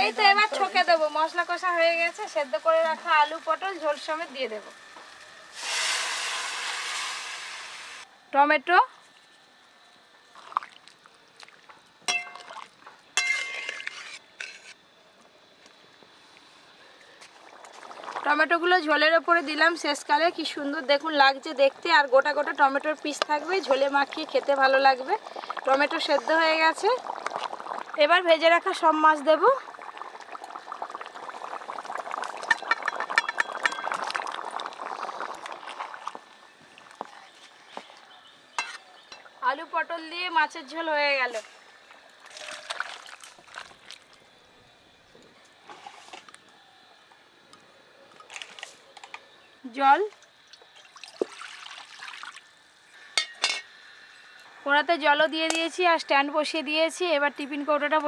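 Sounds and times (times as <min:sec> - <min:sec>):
splashes and light knocks: 0:10.3 - 0:12.9, 0:42.2 - 0:44.2, 0:50.2 - 0:52.4
curry simmering: 0:16.3 - 0:39.5, 0:41.6 - 0:44.3.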